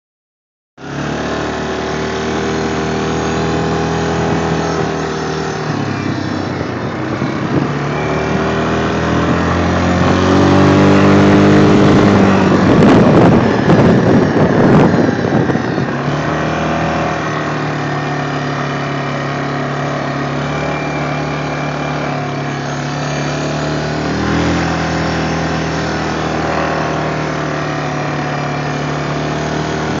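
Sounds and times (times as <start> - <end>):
atv engine running: 0.8 - 30.0.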